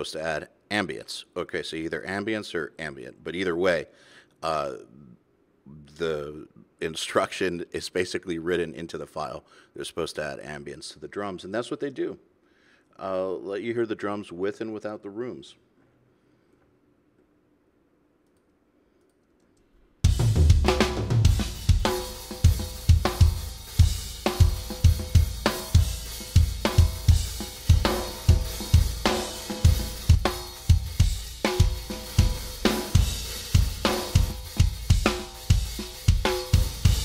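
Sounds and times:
cymbals and hi-hat: 20.0s - 37.0s
snare drum crack: 20.1s - 23.4s
fast kick drum hits: 20.1s - 37.0s.

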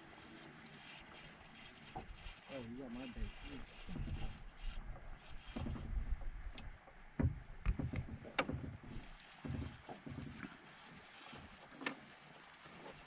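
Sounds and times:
sharp knocks and taps on boat: 4.8s - 9.8s.

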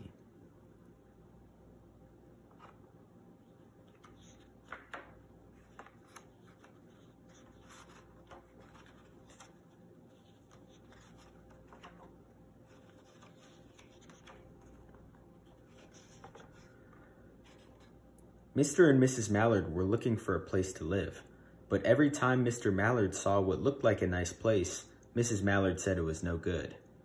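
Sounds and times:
paper pages turning: 2.5s - 2.9s, 3.5s - 18.0s.

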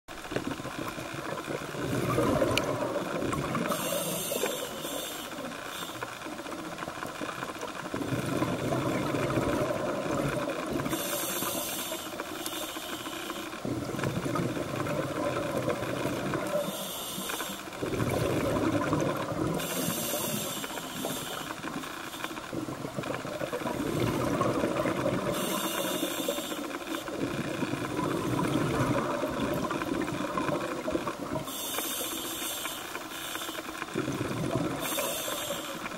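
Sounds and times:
exhaled air bubbling: 0.2s - 5.0s, 7.9s - 12.0s, 13.6s - 21.5s, 22.4s - 31.8s, 33.8s - 35.9s
regulator hissing inhalations: 3.7s - 6.0s, 19.6s - 21.6s, 31.5s - 33.6s, 34.8s - 35.9s.

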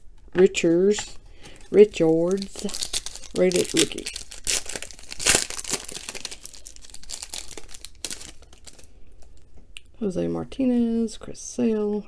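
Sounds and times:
foil wrapper crinkling: 1.4s - 9.4s.

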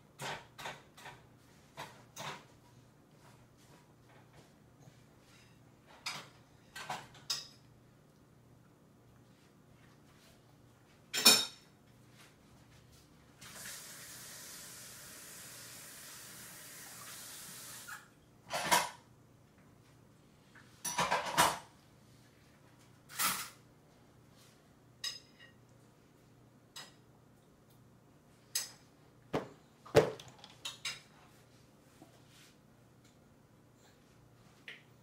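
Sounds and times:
dishes and cutlery clattering: 11.1s - 11.7s, 20.8s - 21.7s
running tap water: 13.5s - 18.1s.

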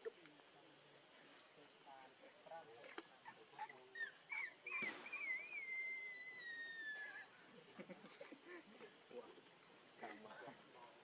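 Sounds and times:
high insect buzz: 0.0s - 11.0s
young monkey crying: 3.2s - 7.4s.

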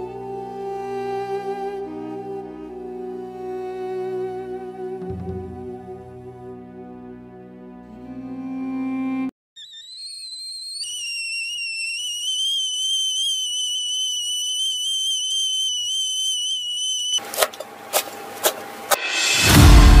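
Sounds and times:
kettle whistling: 9.6s - 19.3s
knife chopping herbs: 17.2s - 19.0s.

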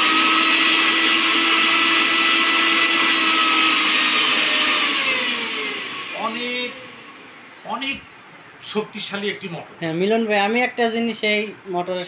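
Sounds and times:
mixer grinder motor whine: 0.0s - 8.6s.

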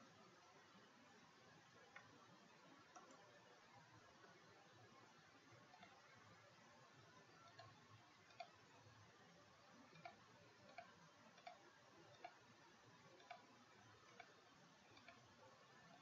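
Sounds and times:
low steady hiss: 0.0s - 16.0s
computer mouse clicks: 1.7s - 2.2s, 2.8s - 3.5s, 5.5s - 16.0s.

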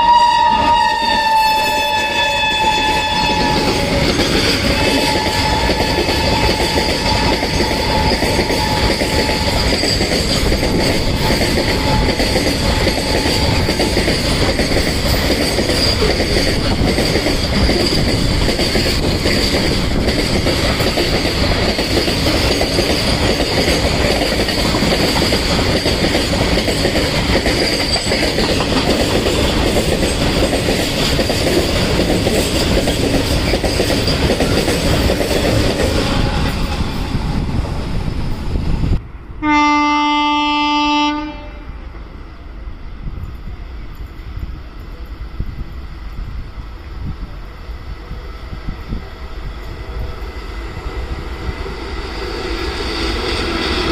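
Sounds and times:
steady high squeal: 0.0s - 19.8s
freight train rushing past: 0.0s - 53.9s.

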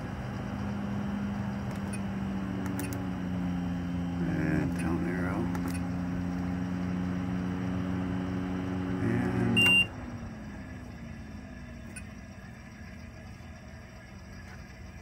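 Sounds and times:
control panel beep: 9.4s - 9.9s.

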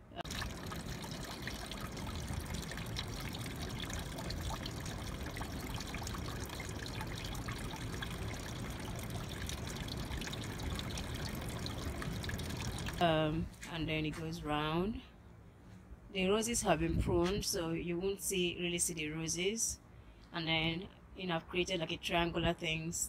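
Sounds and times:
fountain water trickling: 0.2s - 13.1s.

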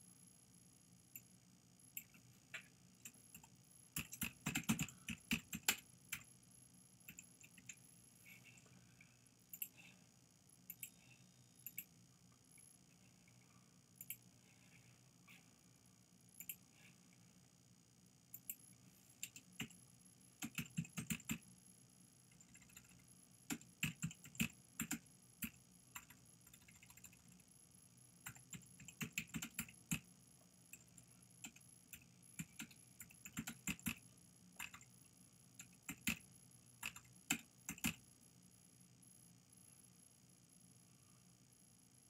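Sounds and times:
keyboard typing: 2.0s - 6.3s, 20.4s - 21.4s, 22.3s - 27.4s, 28.2s - 30.0s, 30.7s - 34.0s, 34.6s - 34.9s, 35.6s - 38.0s.

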